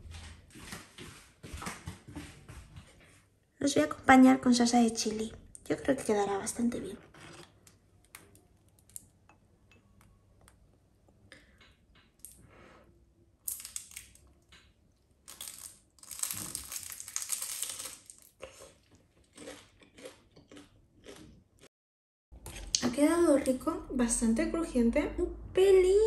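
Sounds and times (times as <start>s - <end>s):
crunching of spring rolls being chewed: 15.3s - 21.7s.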